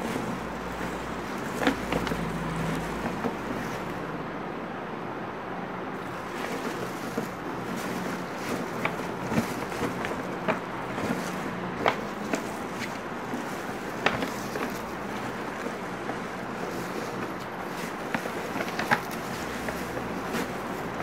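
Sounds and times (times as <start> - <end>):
tinsel and paper rustling: 6.0 - 21.0.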